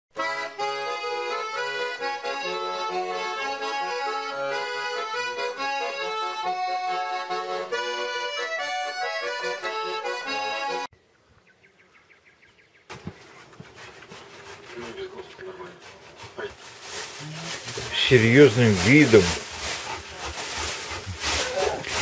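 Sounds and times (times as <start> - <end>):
instrumental music with held notes: 0.2 - 10.9.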